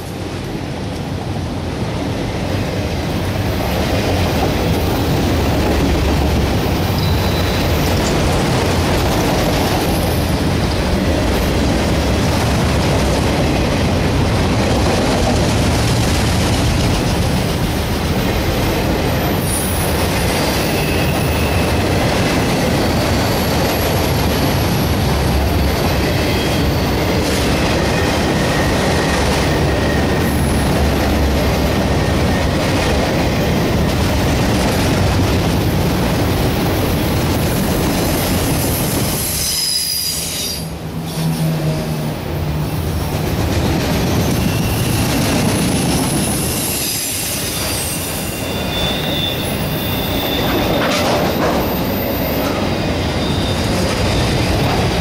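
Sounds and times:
train wheels rumbling on rail: 0.0 - 55.0
high wheel squeals: 6.8 - 8.2, 19.2 - 21.9, 22.5 - 30.7, 38.7 - 41.8, 43.8 - 54.6.

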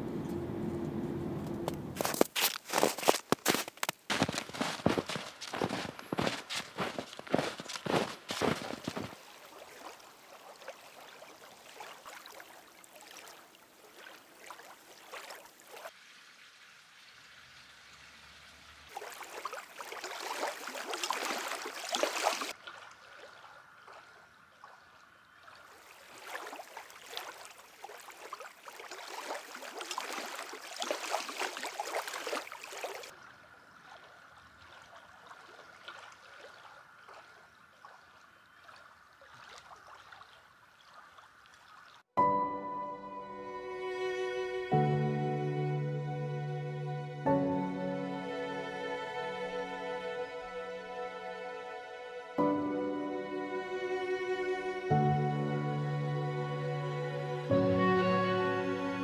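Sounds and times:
stream water running over rocks: 2.0 - 42.1.

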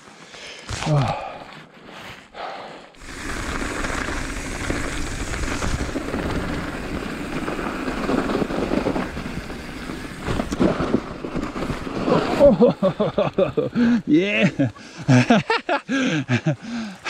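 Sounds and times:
bike tyres on dirt: 0.0 - 17.0
bike knocking over bumps: 3.2 - 12.8.

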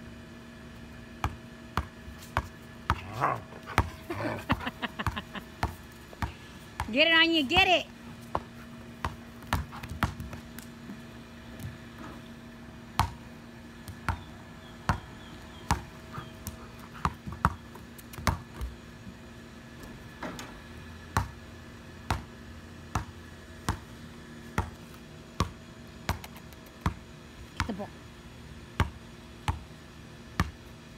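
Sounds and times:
basketball bouncing on concrete: 1.2 - 11.8, 12.9 - 18.8, 21.1 - 21.4, 22.0 - 23.9, 24.6 - 27.9, 28.8 - 30.7.

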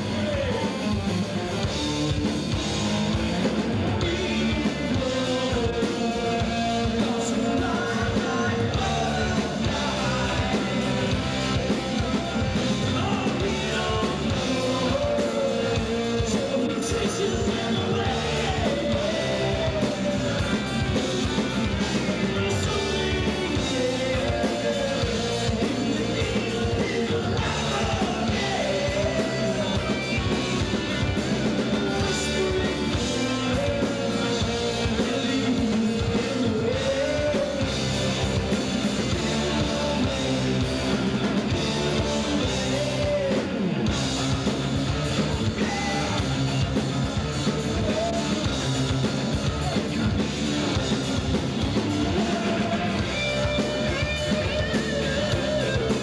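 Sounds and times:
bending lead guitar melody: 0.0 - 56.0
live rock band playing: 0.0 - 56.0.

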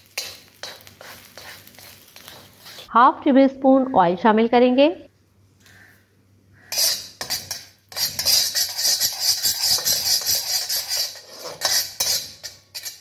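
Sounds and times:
spatula scraping a wok: 0.0 - 2.9, 6.6 - 13.0.

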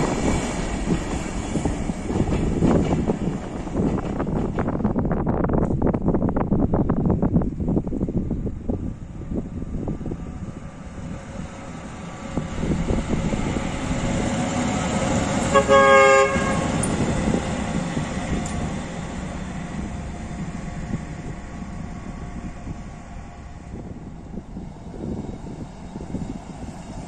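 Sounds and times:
locomotive engine and wheels: 0.0 - 27.0
locomotive horn blast: 15.4 - 17.1.

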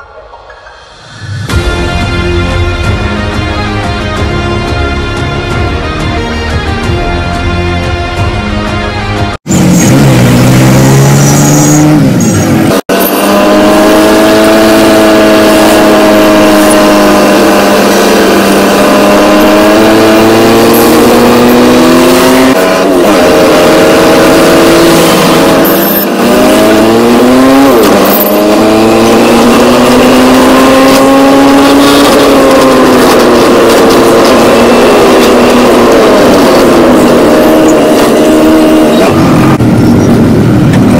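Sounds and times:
vehicle engine accelerating: 9.4 - 40.9.

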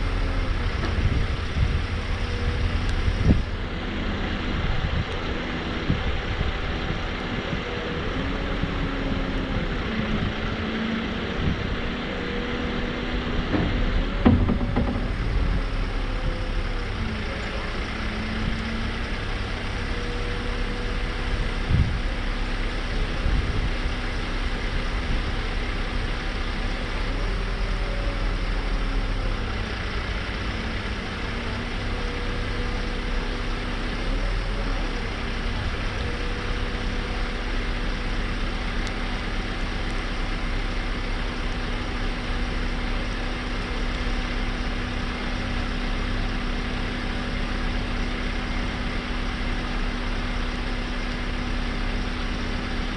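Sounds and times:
diesel engine running: 0.0 - 52.9
single knock: 13.5 - 15.2.

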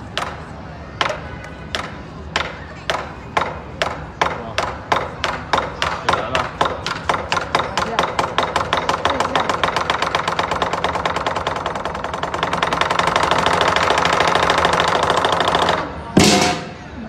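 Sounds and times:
big drum roll: 16.2 - 17.0.

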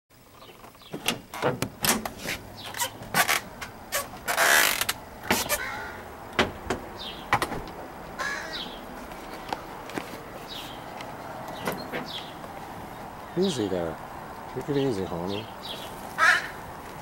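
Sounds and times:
door creaking: 0.4 - 7.8
door clicks and knocks: 0.9 - 2.2, 6.3 - 7.8.

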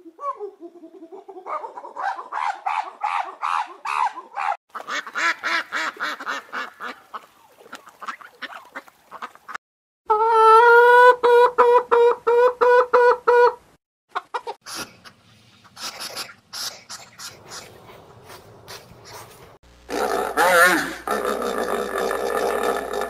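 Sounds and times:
farm birds calling: 10.8 - 19.6.

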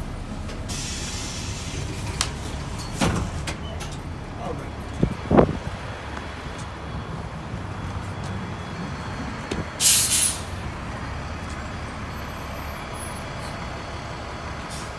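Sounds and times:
bus engine rumble: 0.0 - 14.9
air brakes hissing: 0.6 - 3.4, 9.8 - 10.6, 14.7 - 14.9.

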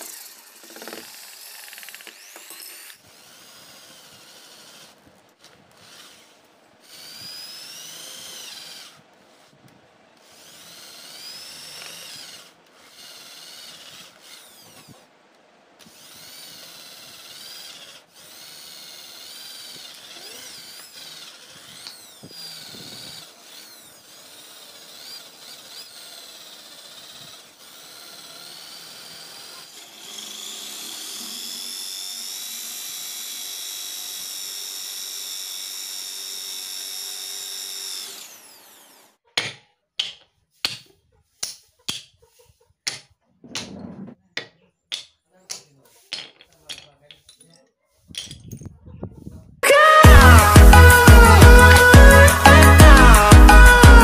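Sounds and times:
electric drill boring into wood: 0.0 - 9.6, 10.2 - 15.0, 15.8 - 39.2, 49.6 - 54.0.

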